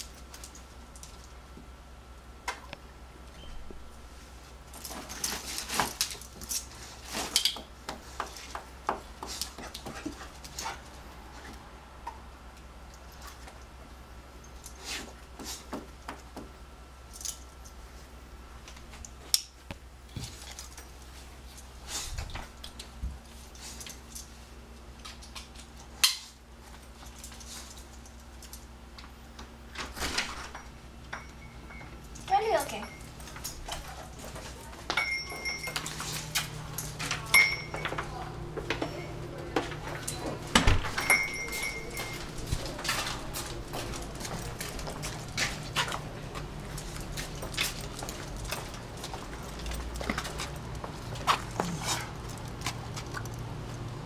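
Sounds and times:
dog collar tags jingling: 0:30.5 - 0:38.2, 0:40.9 - 0:45.4.

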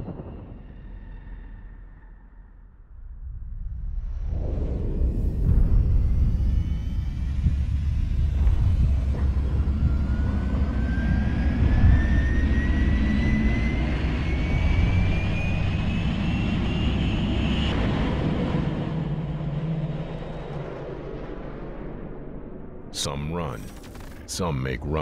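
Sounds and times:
jet engine spooling up: 0:04.8 - 0:21.0.

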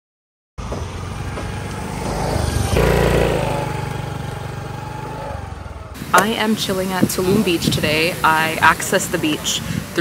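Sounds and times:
scooter engine passing by: 0:00.6 - 0:08.2.

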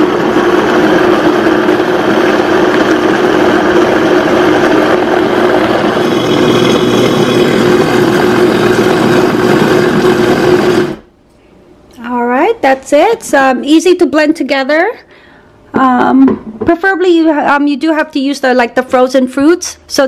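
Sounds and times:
blender running: 0:00.0 - 0:11.1.

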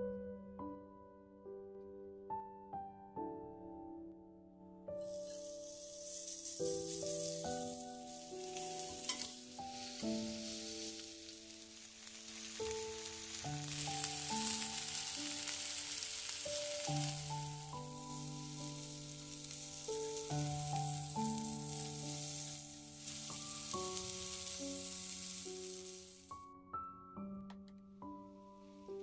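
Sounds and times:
soft background music: 0:00.0 - 0:29.0
meat sizzling in a grill pan: 0:05.0 - 0:26.4.

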